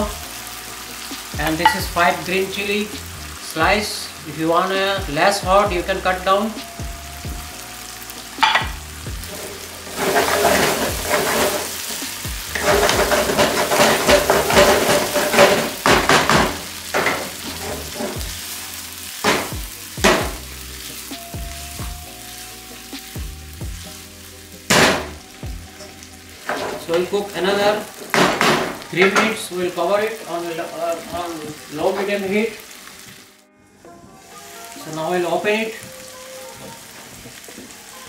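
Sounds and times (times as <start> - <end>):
curry sizzling in a wok: 0.0 - 38.0
spatula knocking against pan: 8.4 - 8.8, 12.7 - 17.3, 19.3 - 20.4.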